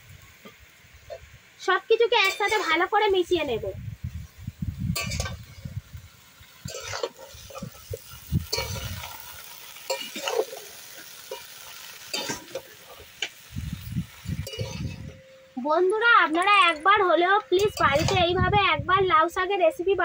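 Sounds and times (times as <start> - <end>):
faint frying sizzle: 0.0 - 20.0
metal spatula scraping pan: 5.0 - 5.6, 6.6 - 9.1, 14.4 - 15.2.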